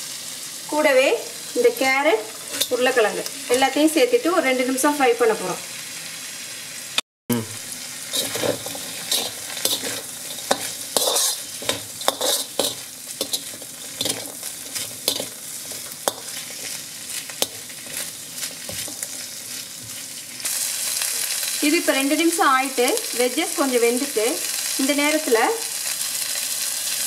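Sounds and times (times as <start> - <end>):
food sizzling in oil: 0.0 - 27.0
metal turner scraping a wok: 2.3 - 3.8, 8.1 - 20.2.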